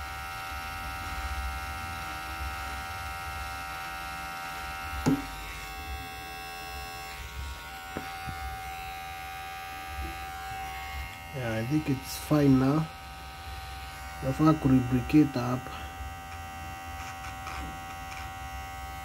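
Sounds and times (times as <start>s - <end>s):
hair clipper buzzing: 0.0s - 19.0s
sharp knock: 5.0s - 5.3s.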